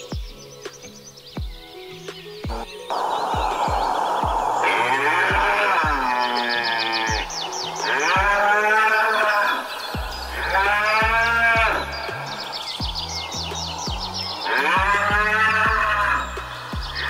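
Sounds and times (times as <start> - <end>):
high descending bird chirps: 1.9 - 17.0
low pulsing beat: 2.5 - 8.7, 9.7 - 17.0
cow mooing: 4.6 - 12.5, 14.4 - 16.5.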